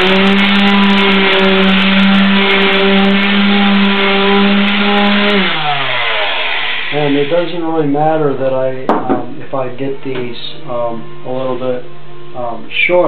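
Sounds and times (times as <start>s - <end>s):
electric sander sanding wood: 0.0s - 8.4s
motor spinning down: 0.0s - 8.4s.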